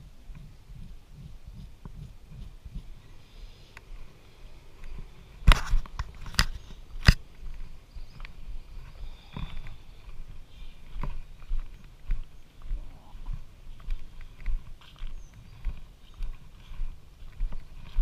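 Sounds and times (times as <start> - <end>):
soft footsteps: 0.0 - 18.0
fingers knocking and rubbing camera: 0.4 - 2.9.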